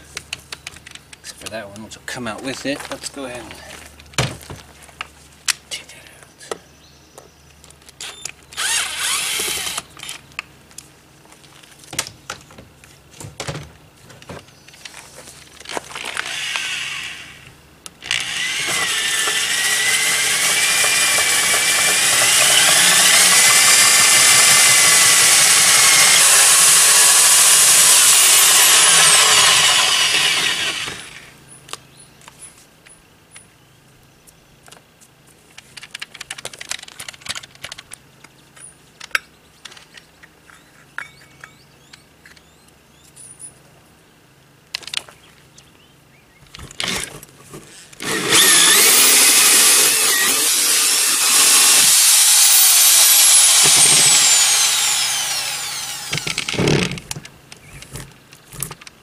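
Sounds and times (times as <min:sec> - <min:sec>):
drill wire wheel on sheet metal: 0:08.6 - 0:09.9, 0:18.0 - 0:31.3, 0:48.0 - 0:57.0
handling clicks and scrapes: 0:56.1 - 0:59.0.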